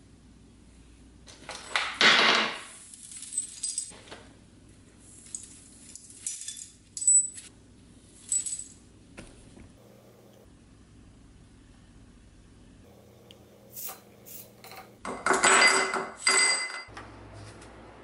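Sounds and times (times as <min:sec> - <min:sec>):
sharp ringing metal clinks: 0:15.5 - 0:16.9.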